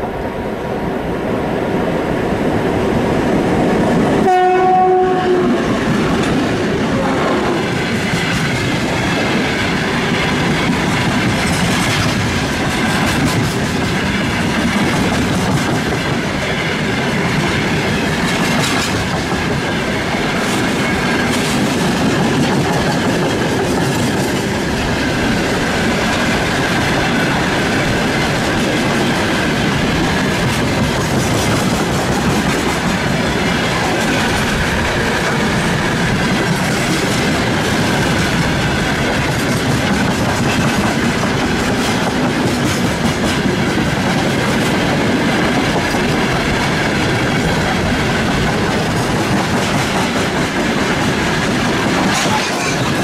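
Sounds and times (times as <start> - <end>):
locomotive horn: 4.2 - 5.7, 6.8 - 7.6
wheels clacking over rail joints: 7.5 - 53.0.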